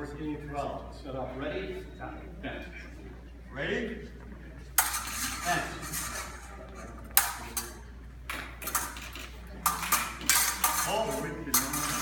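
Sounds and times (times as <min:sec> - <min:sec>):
fencing blades clinking and scraping: 0:04.8 - 0:12.0.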